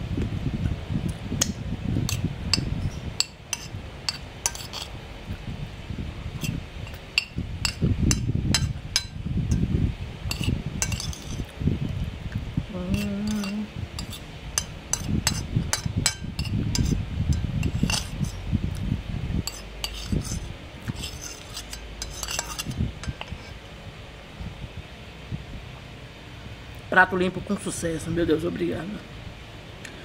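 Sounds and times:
spoon scraping glass plate: 2.1s - 4.9s, 6.4s - 9.6s, 10.3s - 11.5s, 12.9s - 18.4s, 19.4s - 23.6s
person humming: 12.7s - 13.8s.

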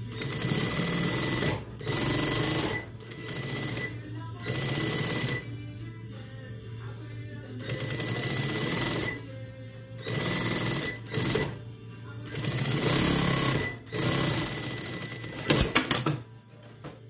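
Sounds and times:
sewing machine stitching: 0.0s - 5.5s, 7.6s - 9.2s, 10.0s - 11.6s, 12.3s - 16.2s.

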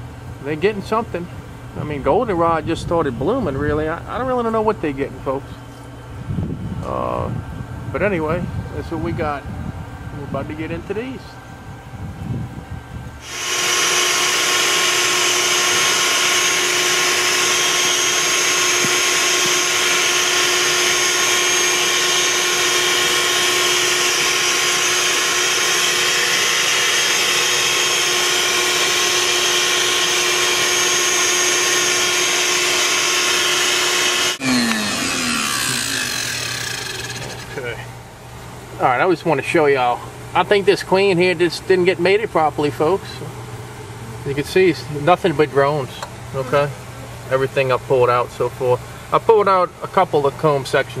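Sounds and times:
vacuum motor whine: 5.7s - 37.8s.

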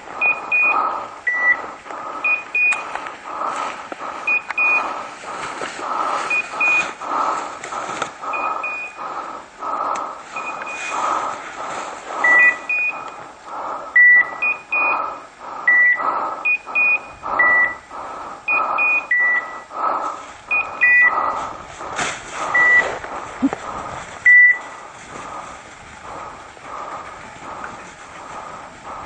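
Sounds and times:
higher double beeps: 12.2s - 13.0s, 15.7s - 17.8s, 18.5s - 19.7s, 20.5s - 21.2s, 22.5s - 22.9s, 24.2s - 24.7s.

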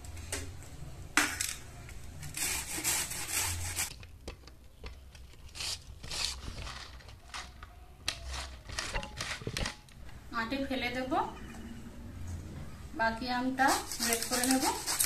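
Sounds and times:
mango scraped on metal grater: 13.6s - 15.0s.

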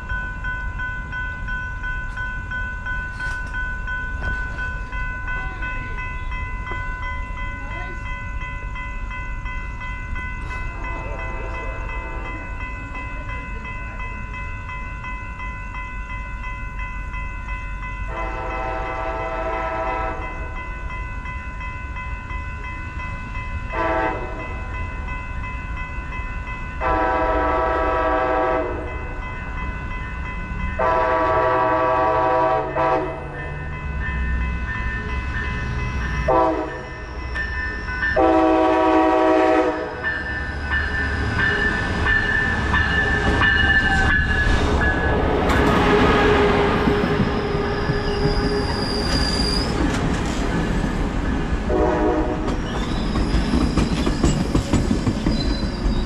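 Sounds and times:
crossing bells ringing: 0.0s - 56.0s
train rumble: 0.0s - 56.0s
train air horn blasts: 18.1s - 20.3s, 23.7s - 24.5s, 26.8s - 28.9s, 30.8s - 33.4s, 36.3s - 37.1s, 38.2s - 40.0s, 51.7s - 52.6s
high wheel squeal: 47.0s - 49.8s, 52.6s - 54.4s, 55.2s - 56.0s.

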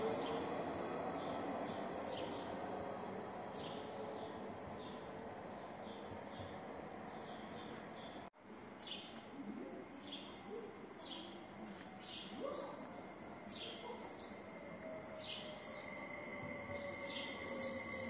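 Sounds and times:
birds chirping: 3.5s - 8.3s.

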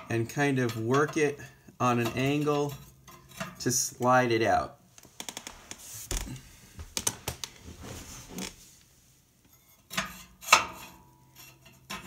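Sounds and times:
metal tube clinking and scraping: 0.0s - 3.9s, 9.4s - 12.0s.

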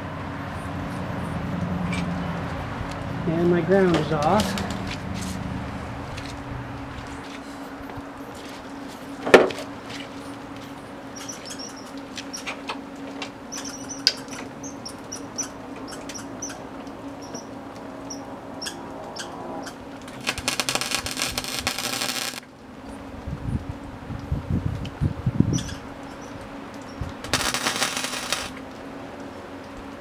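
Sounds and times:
steady hum: 0.0s - 30.0s
welding arc crackle: 3.9s - 7.4s, 19.7s - 22.5s, 25.6s - 28.8s.

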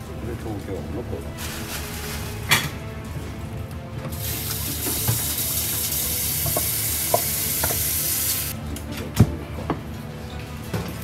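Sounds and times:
tap running into metal sink: 4.5s - 8.4s.

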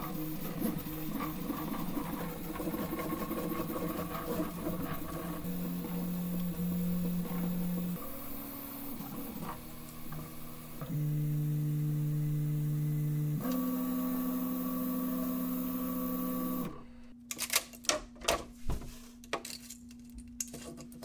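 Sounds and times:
three d printer stepper motors: 0.0s - 17.0s
steel sheet clicks and snaps: 17.3s - 18.1s.

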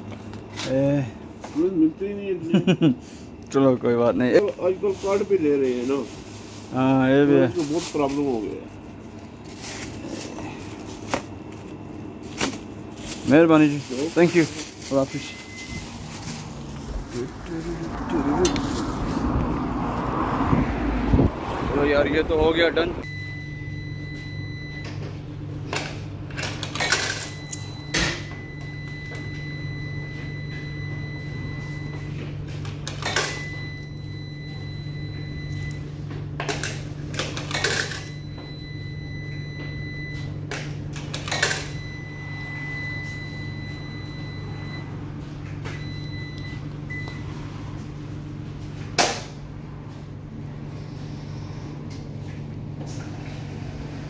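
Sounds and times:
washing machines humming: 0.0s - 54.0s
coins clinking into coin slot: 37.2s - 38.1s.

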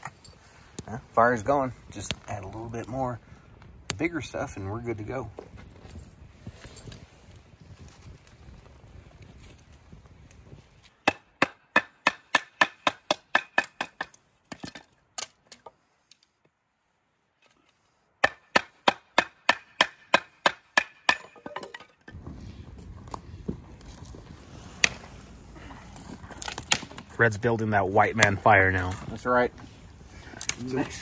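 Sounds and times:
blade chopping firewood: 10.8s - 15.8s, 18.2s - 22.3s, 23.0s - 25.2s, 26.0s - 29.2s.

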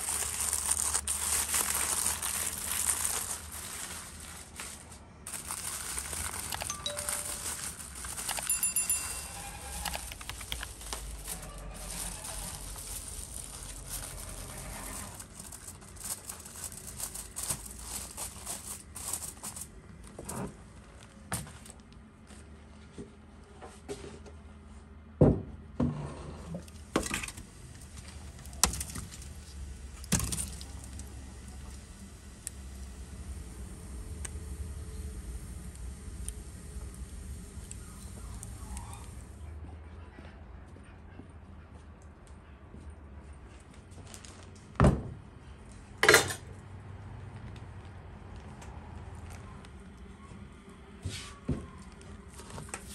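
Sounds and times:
aluminium foil crinkling: 0.0s - 20.3s, 26.7s - 39.3s.

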